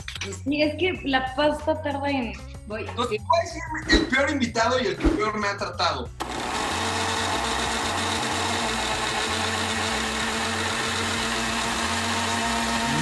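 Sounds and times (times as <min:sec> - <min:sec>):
blender running: 0:06.2 - 0:13.0.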